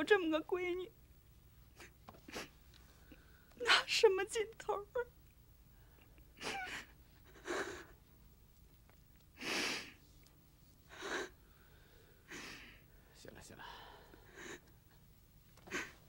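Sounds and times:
person breathing: 0:10.9 - 0:14.7.

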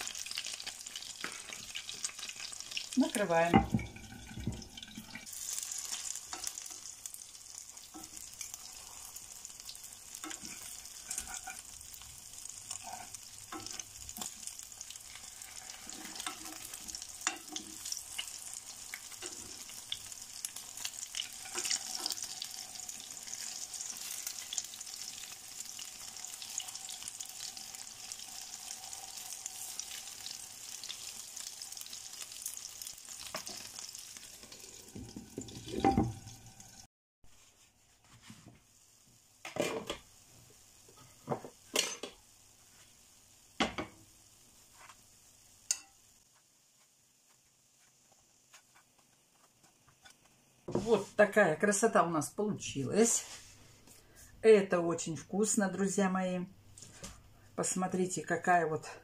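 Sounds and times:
fritters sizzling in oil: 0:00.0 - 0:51.3, 0:52.4 - 0:54.4
fork tapping a pan: 0:45.7 - 0:46.0.

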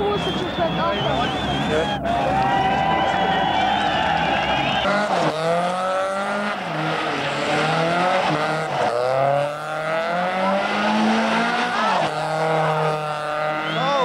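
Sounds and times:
car engine revving: 0:00.0 - 0:14.0.

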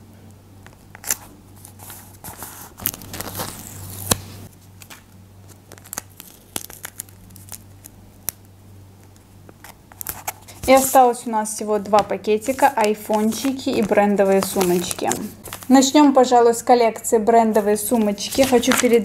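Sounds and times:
paper rustling and crinkling: 0:00.9 - 0:07.9, 0:09.6 - 0:11.2, 0:11.9 - 0:15.9, 0:17.5 - 0:19.0.

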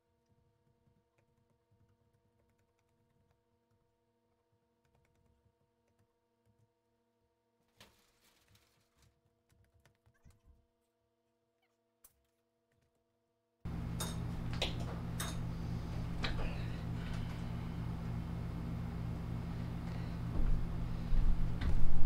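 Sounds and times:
low machine hum: 0:13.7 - 0:22.0.

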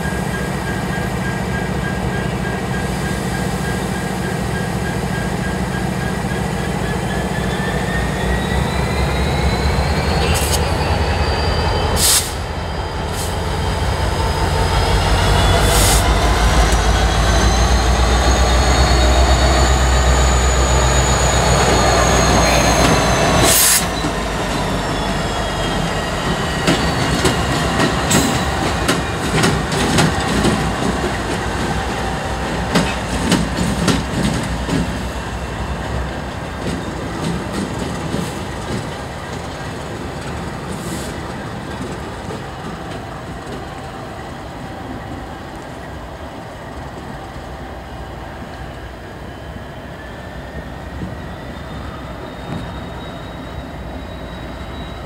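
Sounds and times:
locomotive engines droning: 0:00.0 - 0:55.0
high-pitched wheel squeal: 0:05.1 - 0:13.6, 0:14.3 - 0:31.2, 0:49.1 - 0:55.0.

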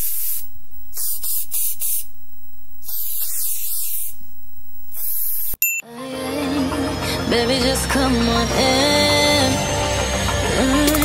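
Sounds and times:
aerosol spray can hissing: 0:00.0 - 0:00.4, 0:01.0 - 0:02.1, 0:02.8 - 0:04.2.

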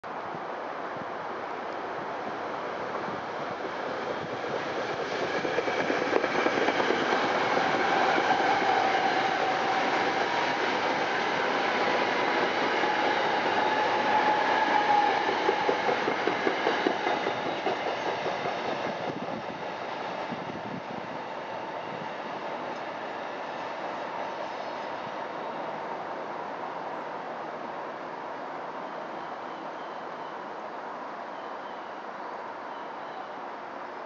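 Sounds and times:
faint train whine: 0:00.1 - 0:34.0
train wheels clicking over rail joints: 0:03.6 - 0:19.4.

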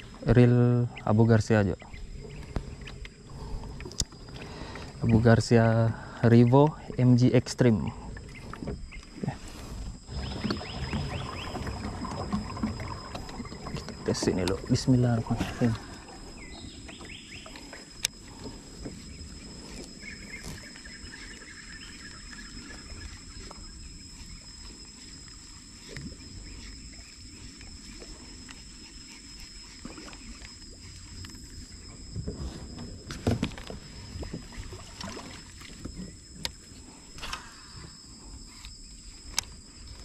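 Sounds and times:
spool whirring: 0:10.1 - 0:17.0
rod and reel knocking on kayak: 0:10.1 - 0:19.1.

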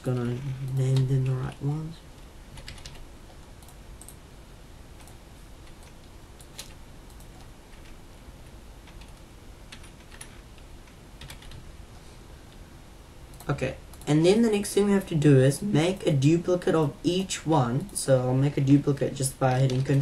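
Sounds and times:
steady low hum: 0:00.0 - 0:20.0
computer keyboard typing: 0:02.5 - 0:04.2, 0:05.0 - 0:08.0, 0:08.8 - 0:11.6, 0:19.6 - 0:20.0.

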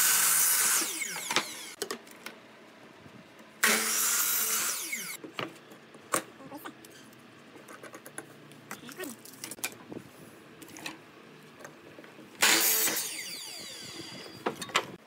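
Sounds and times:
miter saw cutting wood: 0:00.0 - 0:01.8, 0:03.6 - 0:05.2, 0:12.4 - 0:14.4
saw blade whine spinning down: 0:12.5 - 0:14.5.

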